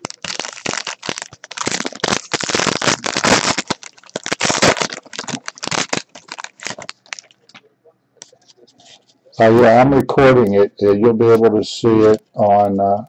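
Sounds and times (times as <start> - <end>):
foil wrapper crinkling and tearing: 0.0 - 7.6.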